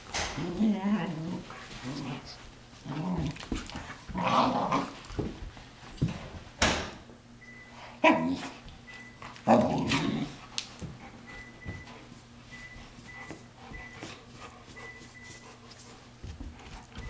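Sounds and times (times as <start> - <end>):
dogs growling and barking: 0.4 - 5.1, 8.0 - 8.5, 9.4 - 10.4.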